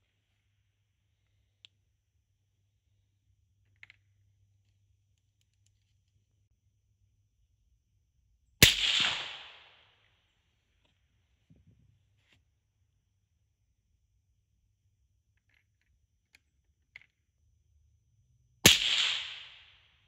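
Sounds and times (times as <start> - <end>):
rifle shot with echo: 8.6 - 10.1, 18.6 - 20.0.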